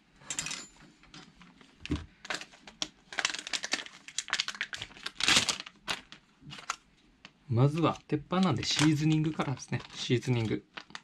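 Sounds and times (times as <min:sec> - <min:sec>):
plastic packaging crinkling: 0:01.6 - 0:11.0.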